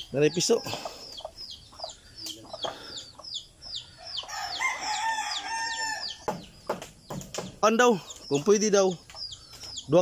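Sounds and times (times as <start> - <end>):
rooster crowing: 4.0 - 6.3.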